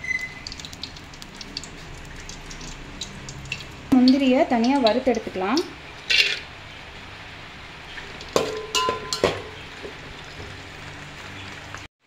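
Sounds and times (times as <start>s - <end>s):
nuts sizzling in hot fat: 0.3s - 11.8s
metal spoon scraping pot: 6.0s - 6.5s, 7.9s - 10.0s.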